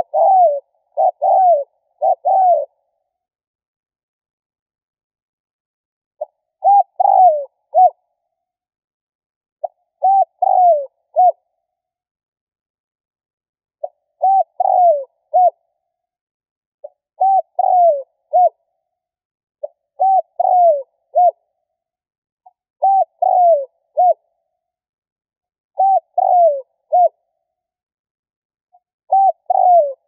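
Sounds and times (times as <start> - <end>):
dove cooing: 0.0 - 2.9, 6.2 - 8.0, 9.6 - 11.4, 13.8 - 15.6, 17.2 - 18.6, 20.0 - 21.4, 22.8 - 24.2, 25.8 - 27.2, 29.1 - 30.0.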